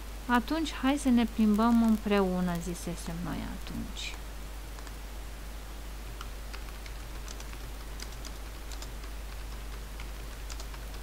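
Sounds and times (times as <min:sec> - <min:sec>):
steady low hum: 0:00.0 - 0:11.0
keyboard typing: 0:06.2 - 0:11.0.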